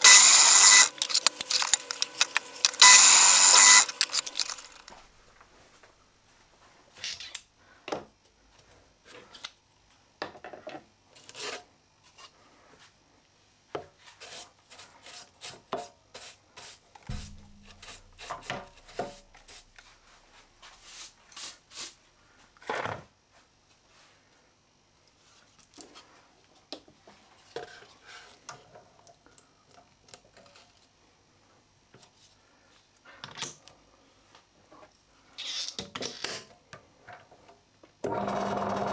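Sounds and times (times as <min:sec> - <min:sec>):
low hum: 0:17.1 - 0:20.8.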